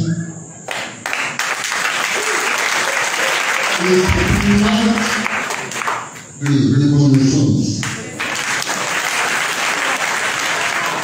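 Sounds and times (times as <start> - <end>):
crowd applauding: 0.7 - 11.0
man speaking into microphone: 3.8 - 5.2, 6.4 - 7.8.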